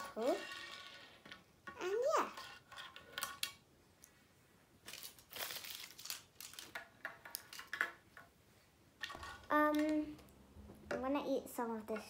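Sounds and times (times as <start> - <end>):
foil wrapper crinkling: 4.9 - 6.8.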